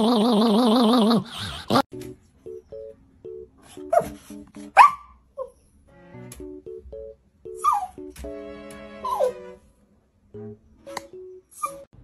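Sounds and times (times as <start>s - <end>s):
background music with held notes: 1.9s - 5.1s, 5.7s - 12.0s.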